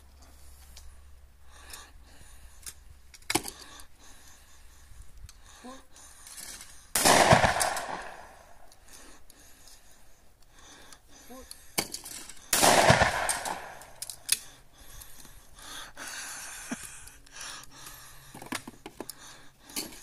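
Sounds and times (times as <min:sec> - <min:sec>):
sharp cracks: 0:06.9 - 0:08.8, 0:11.6 - 0:14.6
shotgun blast: 0:07.0 - 0:08.4, 0:12.5 - 0:14.0.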